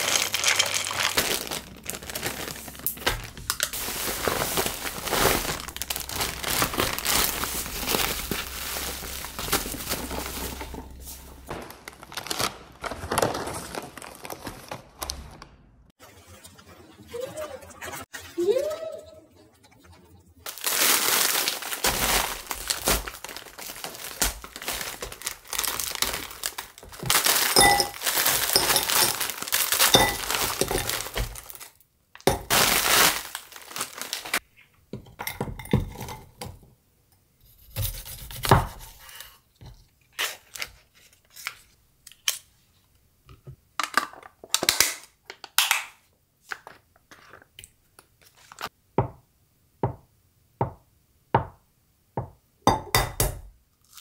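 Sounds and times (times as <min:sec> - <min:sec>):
frozen vegetables clattering into bowl: 0:00.0 - 0:14.7, 0:20.5 - 0:34.4
plastic bag crinkling: 0:00.0 - 0:15.0, 0:20.4 - 0:34.4.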